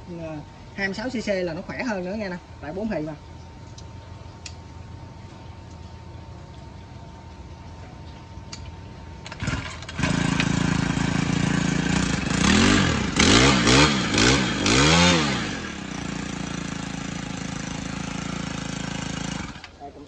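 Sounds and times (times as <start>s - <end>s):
brush cutter engine revving: 9.2s - 19.8s.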